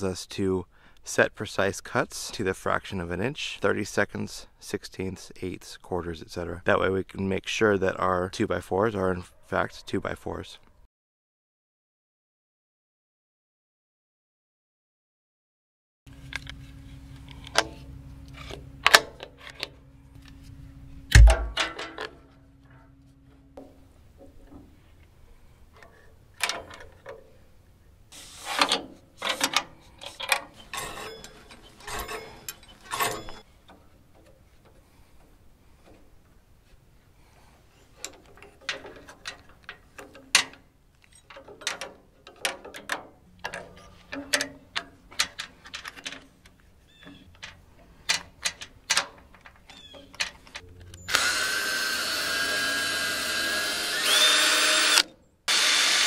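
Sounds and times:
metal parts and tools clicking: 0:25.8 - 0:27.3, 0:28.4 - 0:34.8, 0:37.9 - 0:51.3
cordless drill whining: 0:51.0 - 0:56.0.

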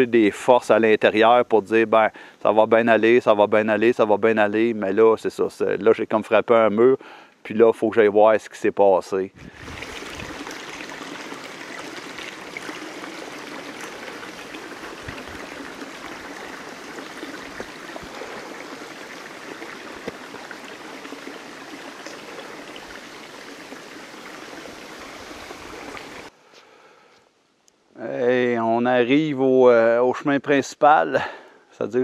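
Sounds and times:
brook water rushing: 0:09.4 - 0:26.3.

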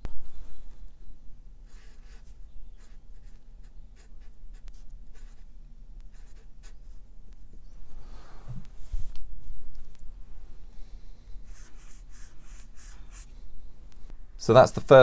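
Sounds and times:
felt-tip marker scratching on paper: 0:01.7 - 0:05.5, 0:06.1 - 0:07.0, 0:11.5 - 0:13.3.

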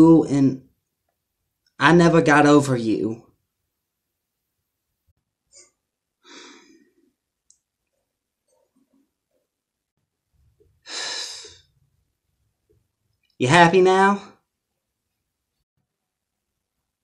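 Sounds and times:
person sighing: 0:06.2 - 0:06.9, 0:10.8 - 0:11.6
person breathing out: 0:06.2 - 0:07.0, 0:10.8 - 0:11.7.

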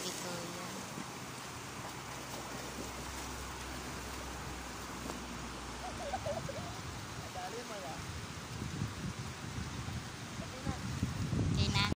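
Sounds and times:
swimmers splashing: 0:00.0 - 0:06.9
river water rushing: 0:00.0 - 0:11.9.

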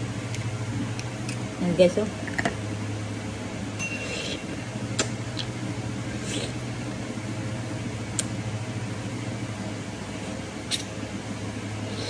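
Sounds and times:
steady low hum: 0:00.0 - 0:12.0
slurps and lip smacks: 0:10.7 - 0:10.9.

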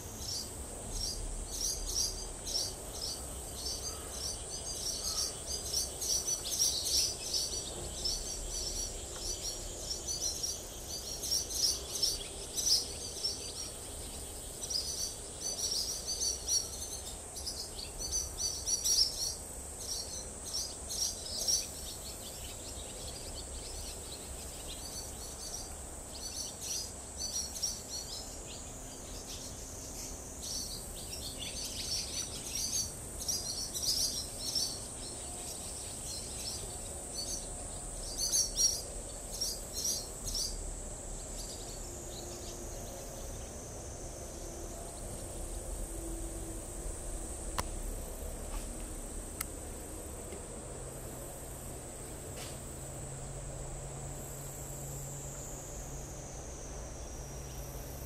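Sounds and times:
swallows twittering: 0:00.0 - 0:40.7.

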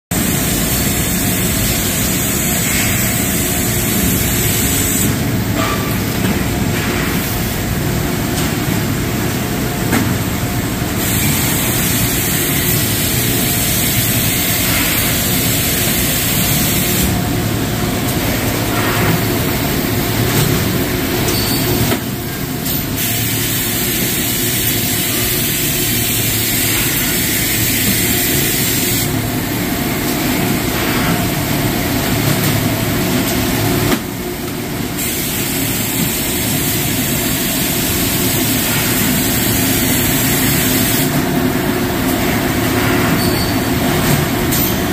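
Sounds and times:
industrial machines running: 0:00.1 - 0:44.9.

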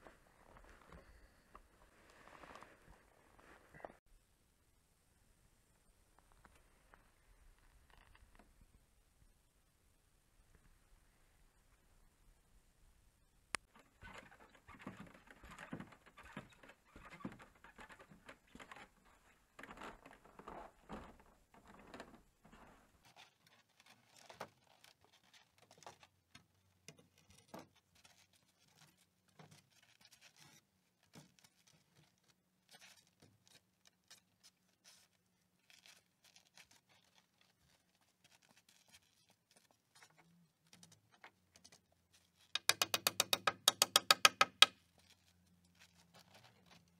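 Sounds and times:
footsteps on wooden ladder: 0:14.2 - 0:22.9.

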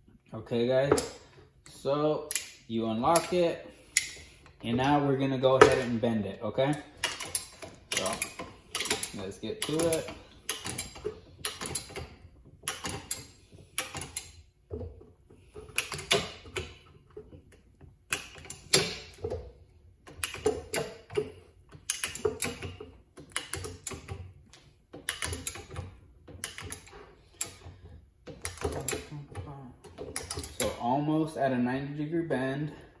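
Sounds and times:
tube bender metal clicks: 0:02.3 - 0:03.4.

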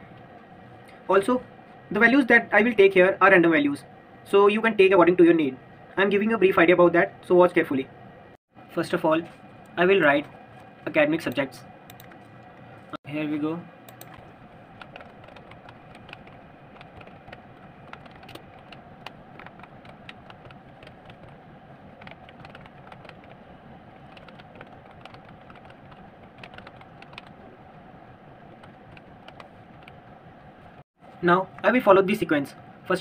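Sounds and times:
steady background hum: 0:00.0 - 0:33.0
computer keyboard keys clicking: 0:11.3 - 0:12.2, 0:13.9 - 0:21.4, 0:22.0 - 0:23.4, 0:24.0 - 0:27.4, 0:28.6 - 0:30.0.

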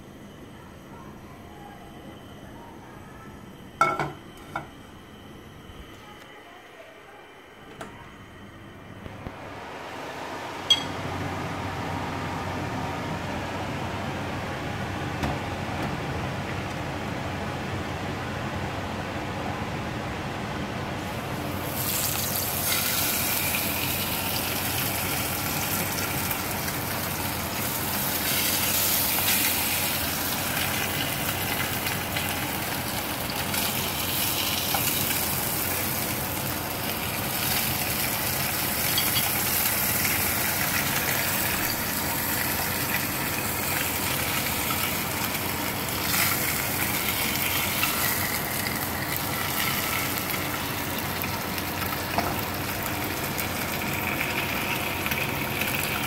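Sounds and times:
fish sizzling in hot oil: 0:21.5 - 0:56.0.

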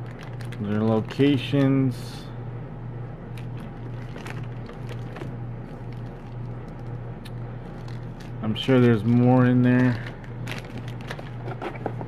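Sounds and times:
cellophane wrap crinkling: 0:00.0 - 0:01.2, 0:03.3 - 0:07.0, 0:07.6 - 0:11.8
steady low hum: 0:00.0 - 0:12.0.

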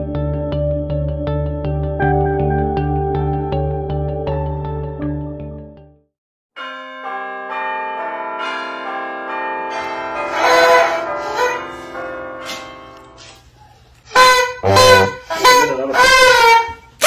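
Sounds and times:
bell chimes ringing: 0:06.6 - 0:13.3.

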